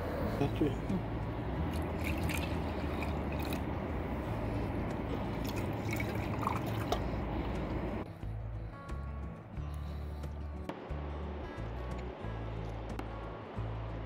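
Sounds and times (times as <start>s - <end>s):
liquid trickling and dripping: 1.6s - 8.0s.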